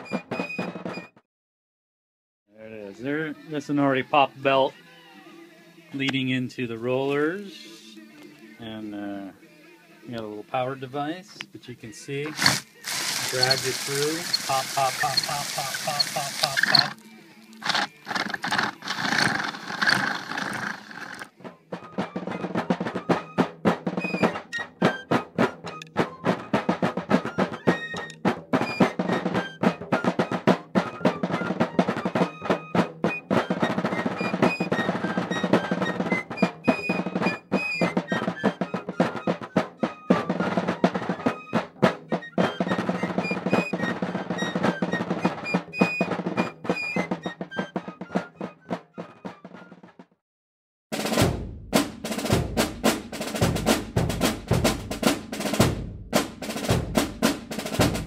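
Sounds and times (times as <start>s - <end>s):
music with fast drum beat: 0.0s - 1.1s, 12.3s - 49.8s, 50.9s - 58.0s
bubble wrap crackling and popping: 12.3s - 21.3s.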